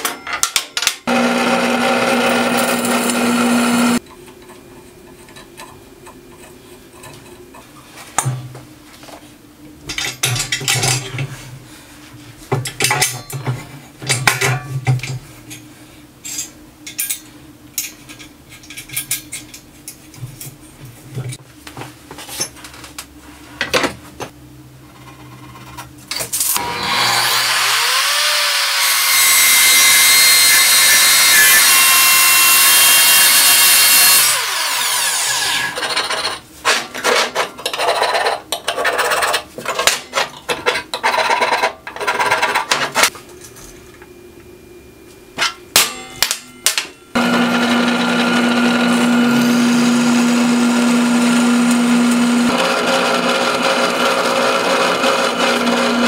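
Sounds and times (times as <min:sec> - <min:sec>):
drill press humming: 0:01.1 - 0:04.0, 0:47.2 - 0:56.0
miter saw cutting steel: 0:01.1 - 0:04.0, 0:26.6 - 0:35.9, 0:47.2 - 0:56.0.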